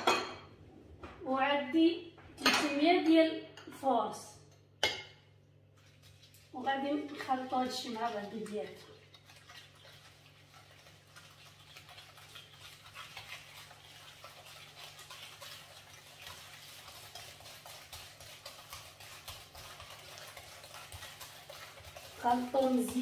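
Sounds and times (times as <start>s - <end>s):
whisk clicking against bowl: 11.4s - 23.0s.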